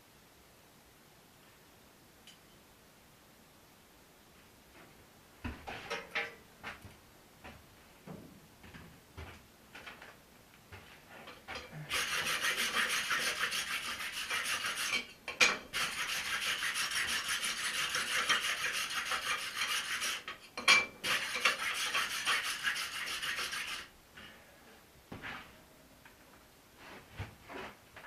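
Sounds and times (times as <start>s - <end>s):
tool scratching steel axe head: 11.9s - 20.4s, 21.0s - 23.9s.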